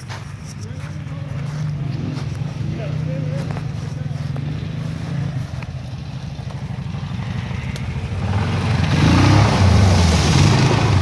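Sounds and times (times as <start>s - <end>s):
quad engine running: 0.0s - 11.0s
water splashing: 7.5s - 11.0s.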